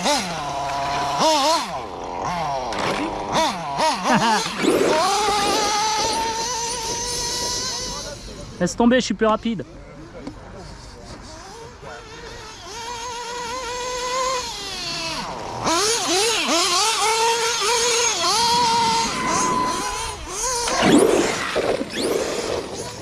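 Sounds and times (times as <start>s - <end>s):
electric motor whining: 0.0s - 8.6s, 11.1s - 23.0s
rough rushing noise: 17.9s - 23.0s.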